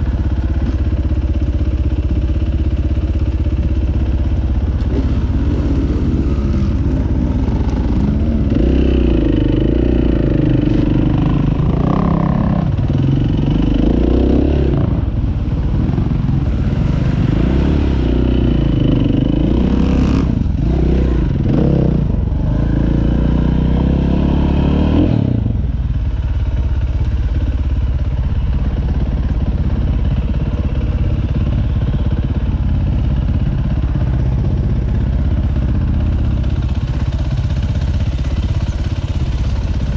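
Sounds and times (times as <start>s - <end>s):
dirt bike engine revving: 4.8s - 15.1s, 15.8s - 25.4s.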